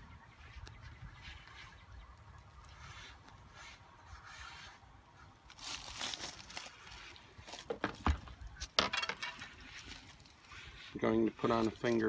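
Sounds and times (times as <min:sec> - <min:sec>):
rustling: 0:05.4 - 0:12.0.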